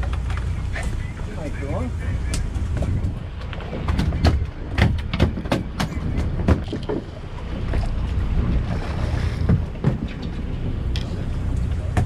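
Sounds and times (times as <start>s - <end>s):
boat engine rumble: 0.0s - 12.0s
water noise: 0.0s - 12.0s
wind: 0.0s - 12.0s.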